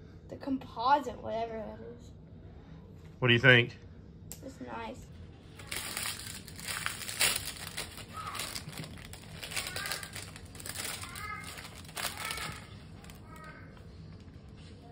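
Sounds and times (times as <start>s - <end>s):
plastic wrap crinkling: 5.5s - 13.6s.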